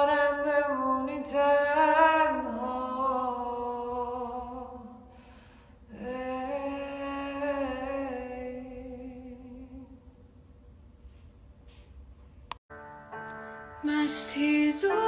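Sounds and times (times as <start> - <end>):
woman singing unaccompanied: 0.0 - 5.0, 5.9 - 10.0, 13.8 - 15.0
woman taking a breath: 5.1 - 5.8.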